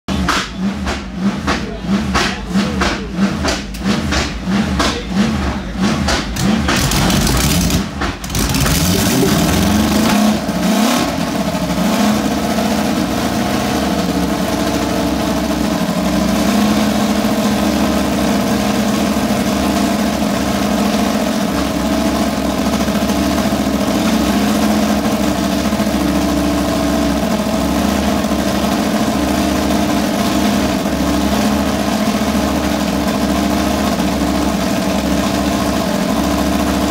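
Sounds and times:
racing engine warming up: 0:00.0 - 0:36.9.

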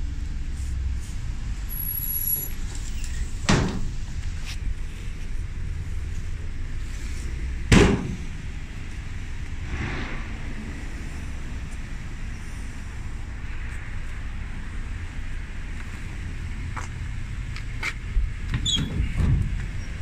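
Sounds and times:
low background rumble: 0:02.5 - 0:20.0
door slamming shut: 0:03.5 - 0:03.9.

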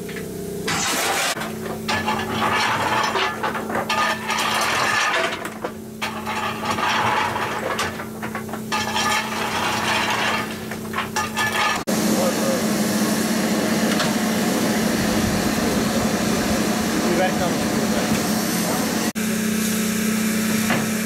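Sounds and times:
steady hum: 0:00.0 - 0:21.0
coal lumps rattling: 0:00.7 - 0:11.9
shovel scraping into coal: 0:00.7 - 0:11.9.

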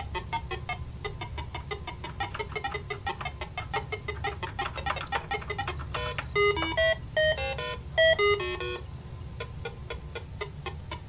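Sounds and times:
square-wave game music beeps: 0:00.0 - 0:08.8.

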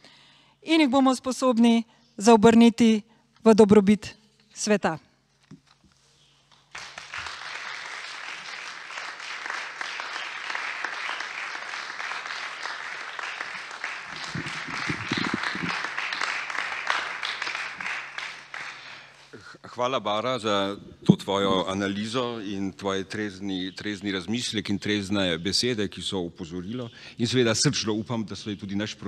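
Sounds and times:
audience applauding: 0:06.6 - 0:19.3
person speaking: 0:14.2 - 0:15.8.

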